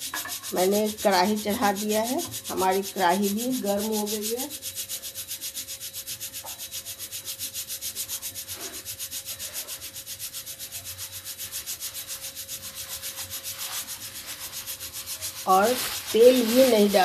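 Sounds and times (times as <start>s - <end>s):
pulsing whooshing hiss: 8.4s - 17.0s.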